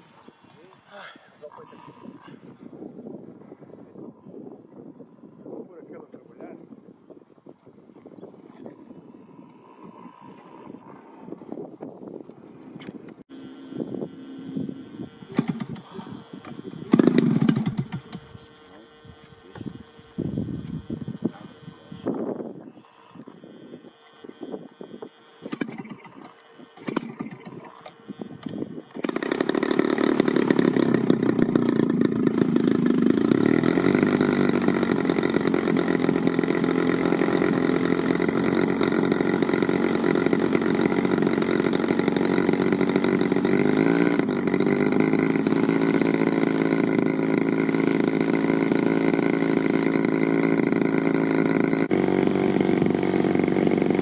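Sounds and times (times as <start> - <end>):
model airplane engine running: 0.0 - 54.0.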